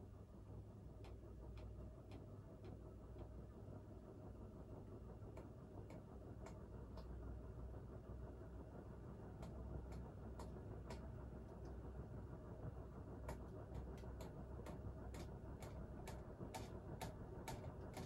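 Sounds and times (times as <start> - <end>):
ceiling fan humming: 0.0 - 18.0
light ticks: 9.4 - 11.8.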